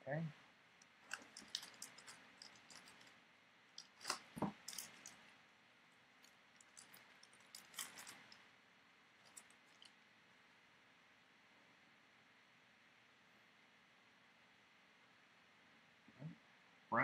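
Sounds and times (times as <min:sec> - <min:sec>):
foil card pack crinkling: 0:01.0 - 0:03.2, 0:03.8 - 0:05.2, 0:06.2 - 0:08.4.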